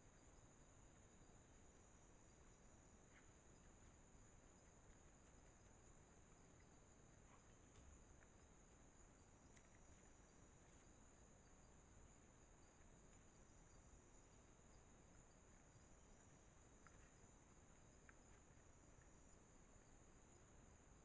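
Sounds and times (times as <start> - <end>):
crickets trilling: 0.0 - 21.0
faint clicks: 2.4 - 21.0
pulsing cricket trill: 8.3 - 21.0.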